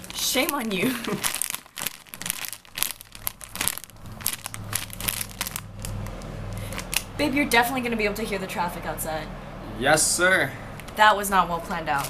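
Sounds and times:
plastic packaging crinkling: 0.0 - 7.1
road traffic rumble: 0.0 - 12.0.

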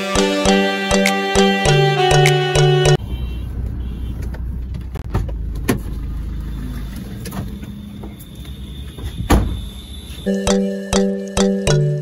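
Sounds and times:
car door shutting: 9.0 - 9.7.

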